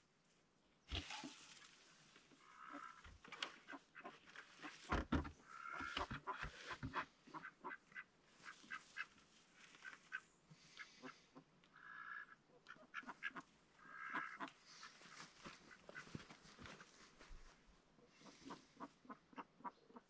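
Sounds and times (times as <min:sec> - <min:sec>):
ducks calling: 0:02.3 - 0:16.3, 0:18.2 - 0:20.0
wooden knocks and clatter: 0:04.6 - 0:07.0.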